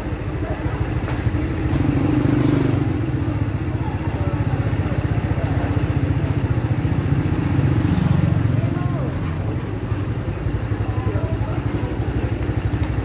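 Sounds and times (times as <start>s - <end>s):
motor scooter passing by: 0.7s - 9.8s.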